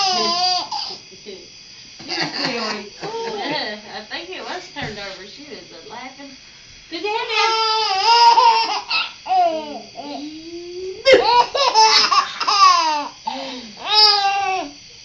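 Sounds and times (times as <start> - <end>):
baby laughing: 7.5 - 9.1, 11.0 - 13.1.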